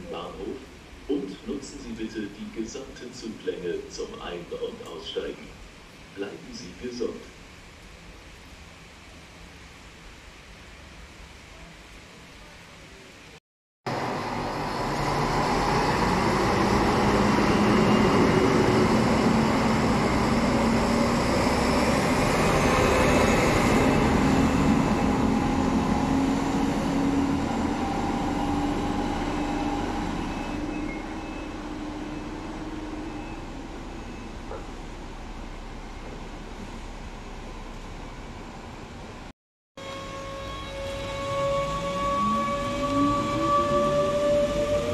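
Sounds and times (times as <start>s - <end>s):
diesel railcar engine passing: 13.9s - 44.9s.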